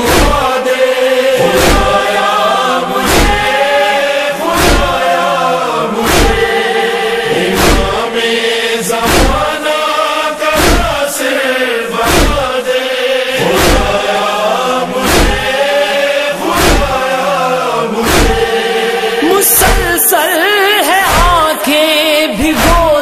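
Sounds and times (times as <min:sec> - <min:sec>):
deep thump: 0:00.0 - 0:00.5, 0:01.6 - 0:02.0, 0:03.0 - 0:03.5, 0:04.6 - 0:05.0, 0:06.0 - 0:06.5, 0:07.6 - 0:08.0, 0:09.0 - 0:09.5, 0:10.6 - 0:11.0, 0:12.0 - 0:12.5, 0:13.5 - 0:14.0, 0:15.0 - 0:15.5, 0:16.6 - 0:17.0, 0:18.0 - 0:18.5
male chorus chanting: 0:00.0 - 0:23.0.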